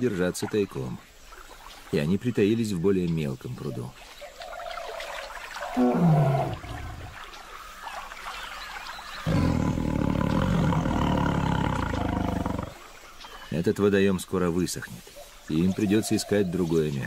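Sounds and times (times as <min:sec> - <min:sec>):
tigers growling: 0:05.7 - 0:07.2, 0:09.2 - 0:12.8.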